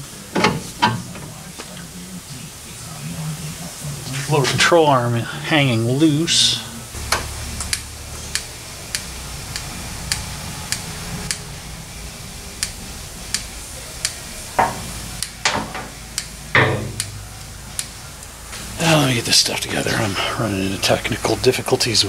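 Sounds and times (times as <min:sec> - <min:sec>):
low shop hum: 0:00.0 - 0:22.0
light ticking: 0:07.1 - 0:11.4, 0:12.6 - 0:14.2, 0:16.1 - 0:18.3
knocks and clatters: 0:15.4 - 0:15.9, 0:16.6 - 0:17.1.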